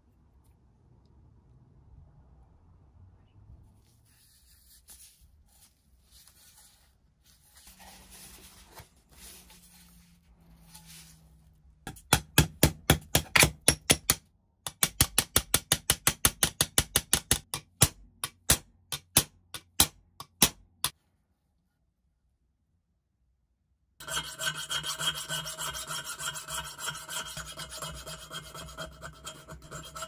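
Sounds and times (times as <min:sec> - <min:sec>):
handling and rubbing sounds: 0:03.6 - 0:11.8.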